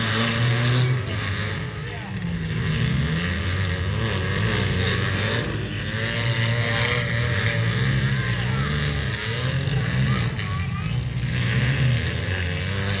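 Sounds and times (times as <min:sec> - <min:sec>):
car engines revving: 0:00.0 - 0:13.0.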